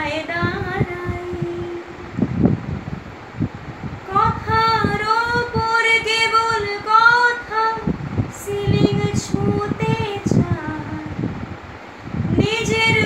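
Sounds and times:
woman singing: 0:00.0 - 0:02.0, 0:04.1 - 0:11.2, 0:12.3 - 0:13.0.

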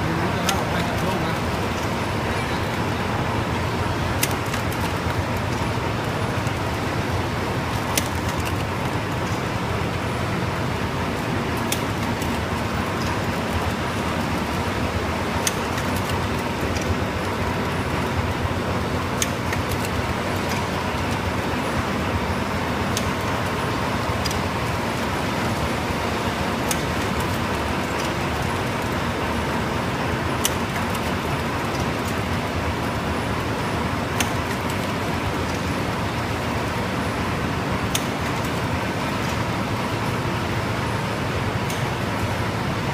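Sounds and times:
faint machine whine: 0:00.0 - 0:42.9
machine hum and clatter: 0:00.0 - 0:42.9.

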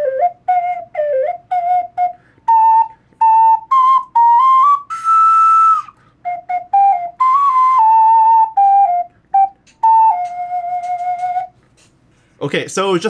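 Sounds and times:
ocarina melody: 0:00.0 - 0:11.8
breath noise: 0:02.2 - 0:03.2, 0:05.9 - 0:06.3, 0:11.6 - 0:12.4.

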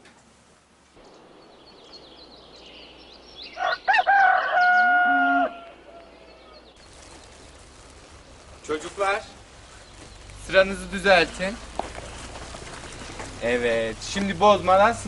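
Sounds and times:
small birds chirping: 0:01.0 - 0:15.0
rooster crowing: 0:03.5 - 0:06.3.

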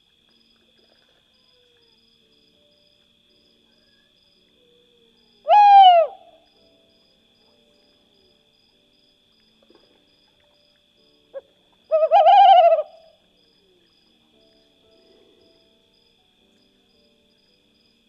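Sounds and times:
owl calling: 0:05.5 - 0:06.4, 0:11.9 - 0:13.1.

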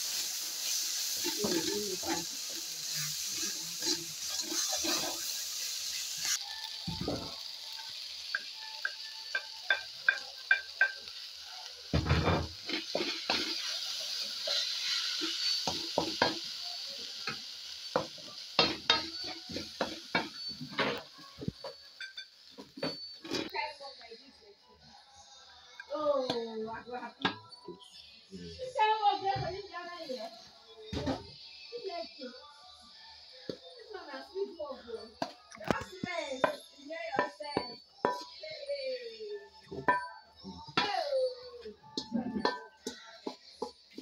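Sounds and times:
vegetables sizzling in oil: 0:00.0 - 0:24.0, 0:28.0 - 0:44.0
spatula scraping a pan: 0:00.6 - 0:06.4, 0:11.9 - 0:16.4, 0:41.9 - 0:44.0.

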